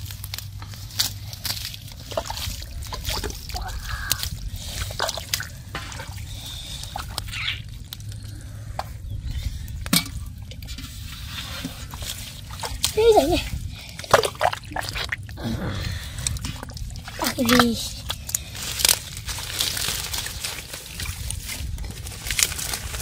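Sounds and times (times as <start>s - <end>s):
hands squelching in mud: 0.0s - 23.0s
water drips and trickles: 0.0s - 23.0s.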